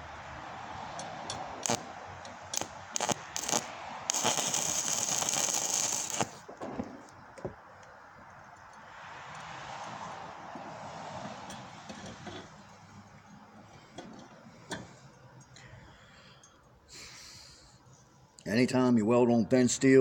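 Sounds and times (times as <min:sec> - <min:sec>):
welding arc sputtering and burning: 0:01.6 - 0:07.2.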